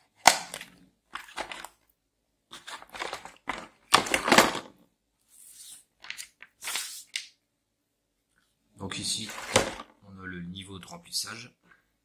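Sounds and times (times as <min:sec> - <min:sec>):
plastic case clatter: 0:00.2 - 0:01.8, 0:02.6 - 0:04.7, 0:09.2 - 0:09.9.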